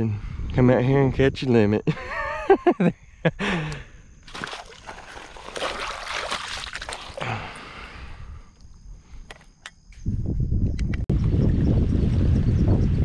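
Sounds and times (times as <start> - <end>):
hands splashing in water: 4.2 - 7.4.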